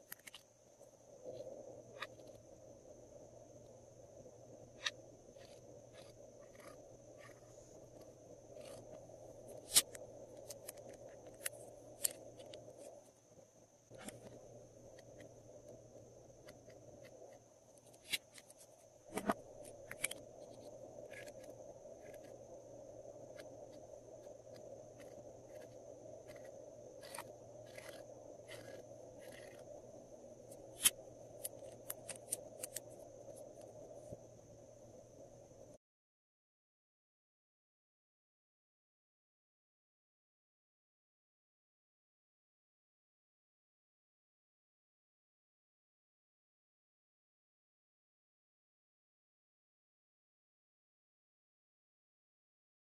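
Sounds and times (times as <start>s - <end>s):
faint steady hiss: 0.0s - 35.8s.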